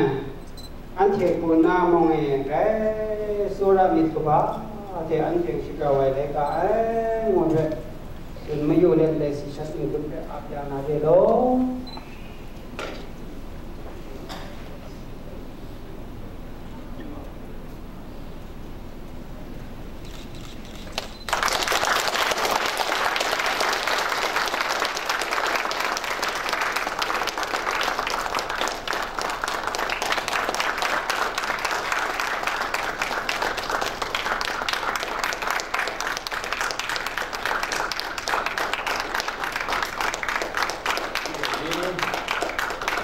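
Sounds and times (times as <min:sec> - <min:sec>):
audience applauding: 0:21.0 - 0:43.0.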